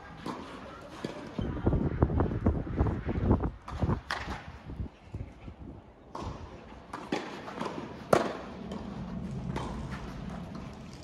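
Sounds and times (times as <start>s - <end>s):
tennis racket hitting ball: 6.2s - 10.3s.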